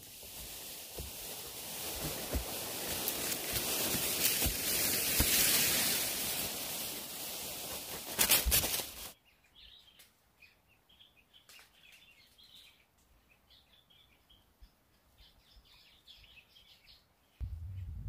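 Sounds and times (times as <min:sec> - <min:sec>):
faint birds chirping: 0:09.2 - 0:18.0.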